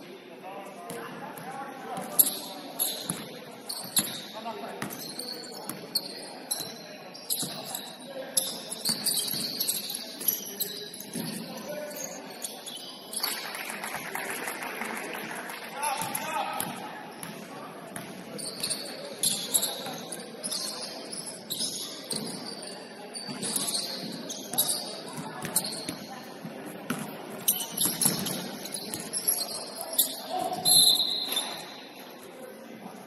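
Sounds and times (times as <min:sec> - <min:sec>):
players' voices: 0:00.0 - 0:33.0
sneakers squeaking on court: 0:00.8 - 0:13.4, 0:16.0 - 0:32.0
basketball bouncing: 0:26.9 - 0:27.1, 0:27.7 - 0:29.0.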